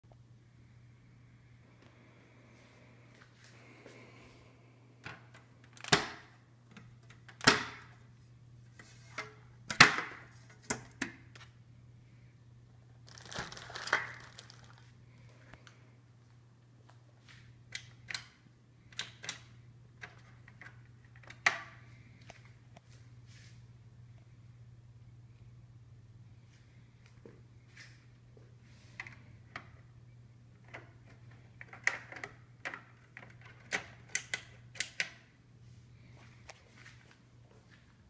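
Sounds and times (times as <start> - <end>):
low steady hum: 0.0 - 38.0.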